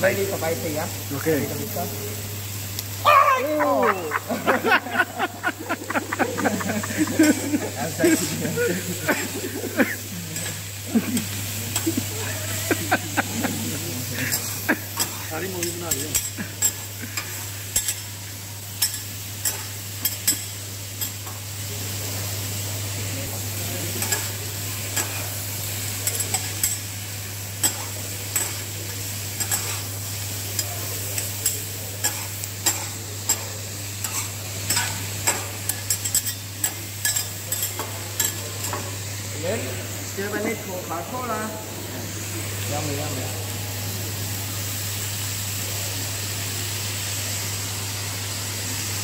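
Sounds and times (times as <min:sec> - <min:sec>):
vegetables sizzling on a griddle: 0:00.0 - 0:49.0
metal spatulas scraping a plate: 0:29.4 - 0:29.9.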